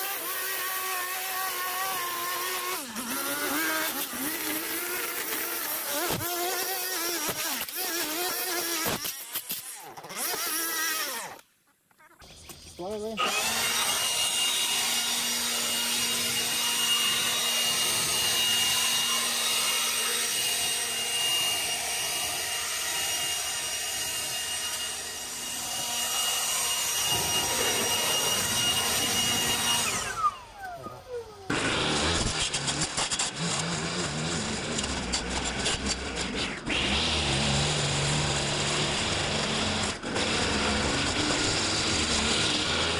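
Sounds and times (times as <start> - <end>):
leaf blower whining: 0.0 - 11.5, 12.8 - 42.9
trimmer cutting grass: 0.0 - 11.5, 12.8 - 42.9.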